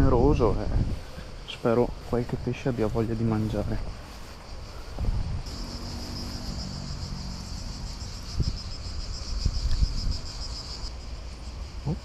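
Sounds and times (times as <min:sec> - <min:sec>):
cricket trilling: 0:00.0 - 0:12.0
dull low thumps: 0:04.9 - 0:05.6.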